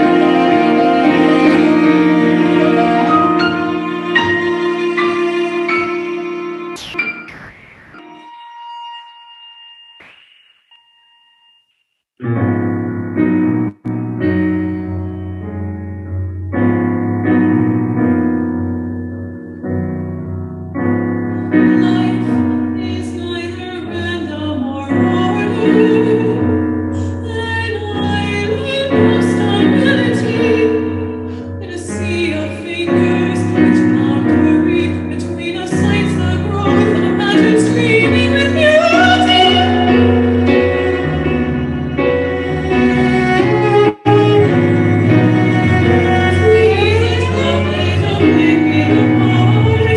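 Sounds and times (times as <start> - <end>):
bowled cello: 0.0 - 6.8, 35.9 - 49.9
piano chords: 0.0 - 11.4, 12.2 - 49.9
woman singing soprano: 21.6 - 40.3, 46.4 - 49.9.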